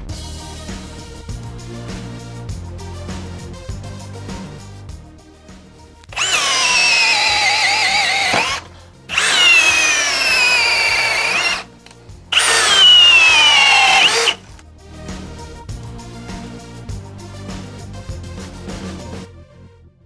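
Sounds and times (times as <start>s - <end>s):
drill motor whine boring wood: 6.1s - 11.7s, 12.3s - 14.5s.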